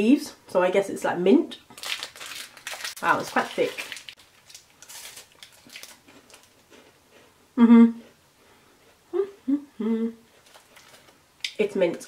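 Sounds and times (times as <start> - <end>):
woman humming mmm: 7.6 - 8.1, 9.1 - 10.3.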